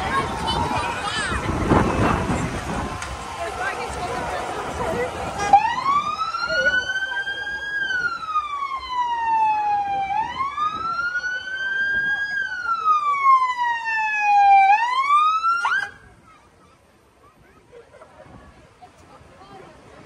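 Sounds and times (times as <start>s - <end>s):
ambulance siren wailing: 0.0s - 16.0s.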